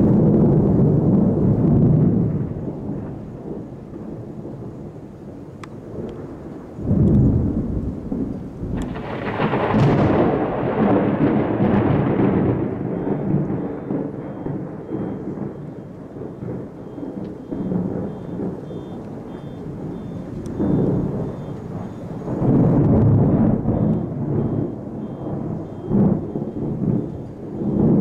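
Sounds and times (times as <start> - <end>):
thunder rumbling: 0.0 - 28.0.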